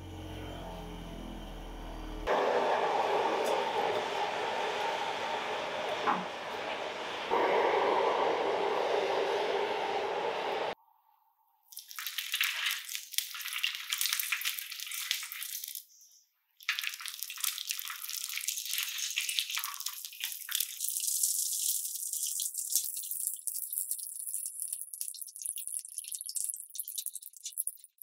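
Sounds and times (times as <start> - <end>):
oil sizzling and crackling: 11.7 - 15.9, 16.6 - 28.0.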